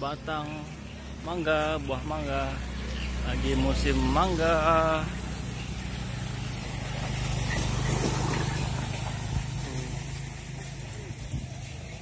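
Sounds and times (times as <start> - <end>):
motorcycle engine running: 0.0 - 12.0
road noise: 0.0 - 12.0.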